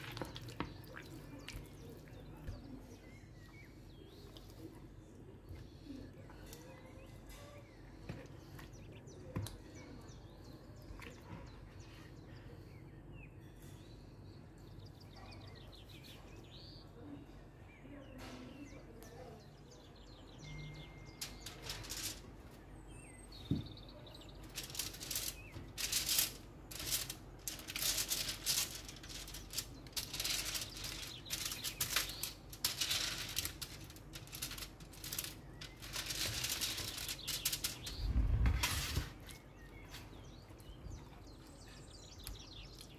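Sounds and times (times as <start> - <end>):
aluminium foil crinkling: 21.1 - 22.4, 24.1 - 39.4.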